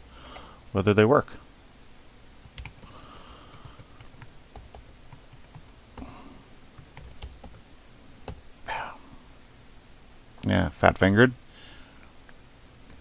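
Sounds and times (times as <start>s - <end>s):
computer keyboard typing: 2.5s - 6.1s, 6.8s - 7.6s.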